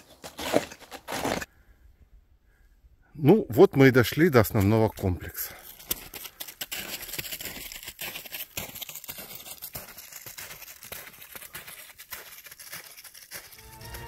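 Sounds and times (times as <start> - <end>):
footsteps crunching on snow: 5.6 - 14.0.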